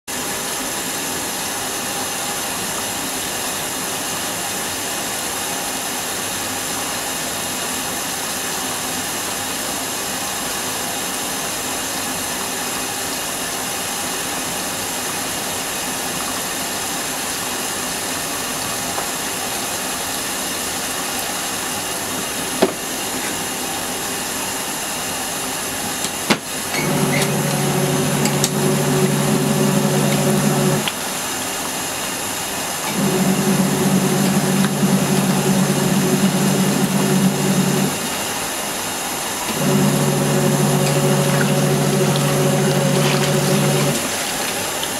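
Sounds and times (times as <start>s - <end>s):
washing machine motor humming: 26.2s - 31.3s, 32.7s - 38.4s, 39.4s - 44.9s.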